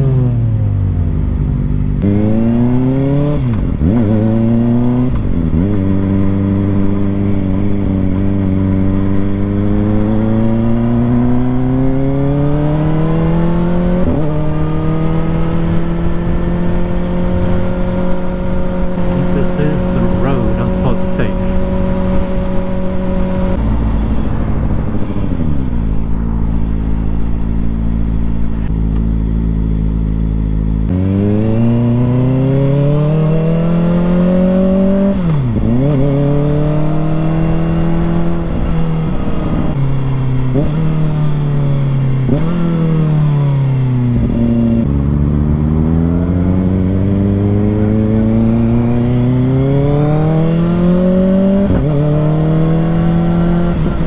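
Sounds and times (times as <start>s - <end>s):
motorcycle engine shifting gears: 0.0s - 54.0s.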